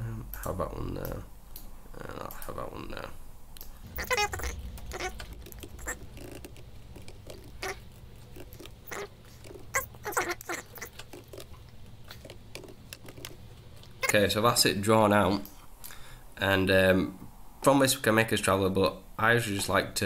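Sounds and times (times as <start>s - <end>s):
keyboard typing: 3.9s - 14.2s.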